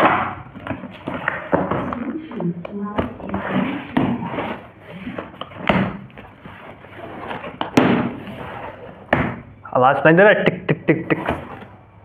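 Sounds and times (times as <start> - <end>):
coin scraping cardboard box: 3.2 - 9.0.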